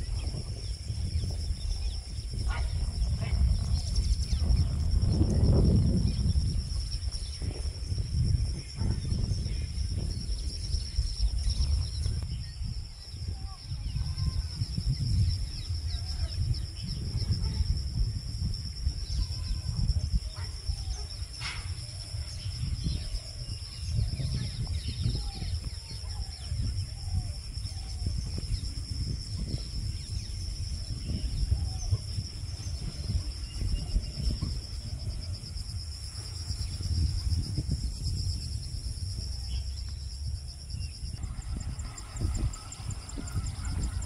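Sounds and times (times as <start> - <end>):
low rumbling noise: 40.0 - 44.0.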